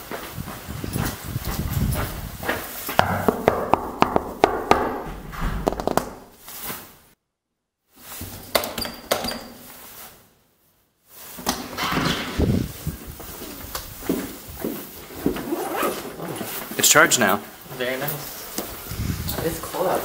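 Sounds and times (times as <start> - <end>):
rustling noise: 0.0 - 3.0, 5.0 - 7.2, 7.9 - 8.5, 9.6 - 17.2, 18.2 - 20.0
sharp knocks and clicks: 3.0 - 6.3.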